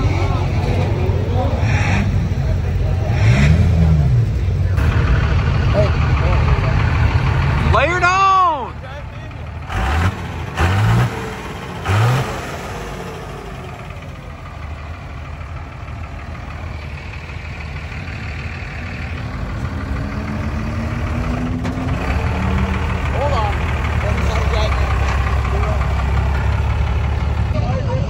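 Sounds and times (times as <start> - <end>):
vehicle engine rumble: 0.0 - 28.0
engine revving blips: 1.6 - 7.8, 9.6 - 14.1, 17.8 - 27.6.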